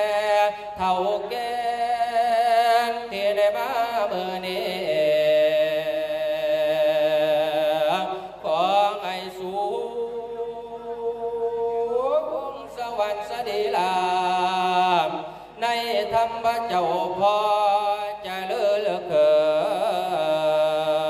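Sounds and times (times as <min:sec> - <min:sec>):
man chanting with vibrato: 0:00.0 - 0:21.0.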